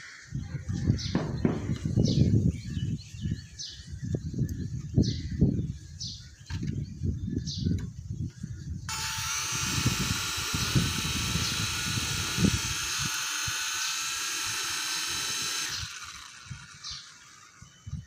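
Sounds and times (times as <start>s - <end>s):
toy helicopter rotor whine: 8.9s - 18.0s.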